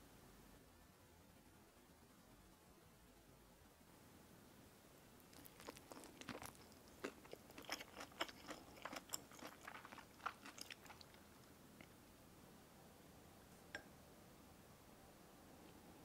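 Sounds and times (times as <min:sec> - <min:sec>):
crunchy food chewing: 0:05.2 - 0:11.9.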